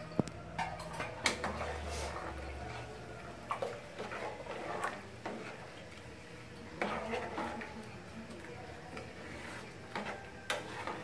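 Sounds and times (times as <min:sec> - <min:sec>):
ladle scraping in pot: 0:00.6 - 0:05.8, 0:06.8 - 0:07.8, 0:08.9 - 0:11.0.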